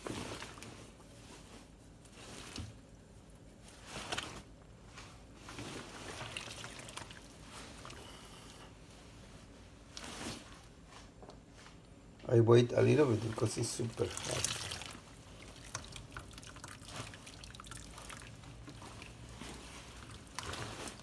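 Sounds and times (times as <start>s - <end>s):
water sloshing and dripping: 5.5s - 8.2s, 13.2s - 21.0s.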